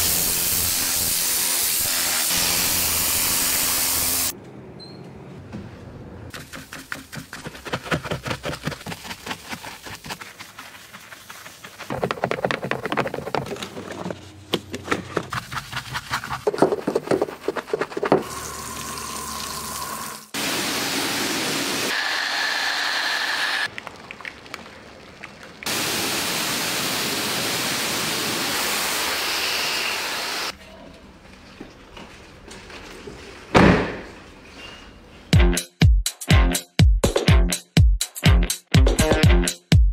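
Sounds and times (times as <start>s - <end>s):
scratchy scrubbing strokes: 6.4s - 14.3s, 15.0s - 18.1s
water spraying hiss: 18.2s - 22.1s, 25.7s - 30.5s.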